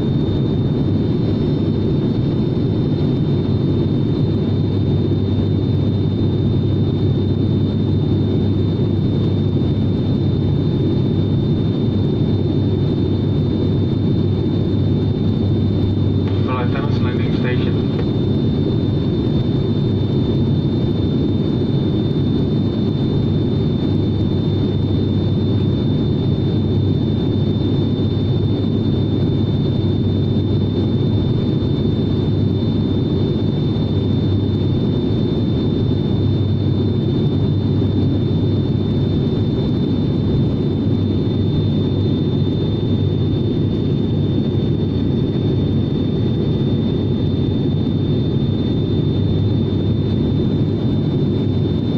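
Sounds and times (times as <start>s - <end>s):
airliner engines droning: 0.0s - 51.9s.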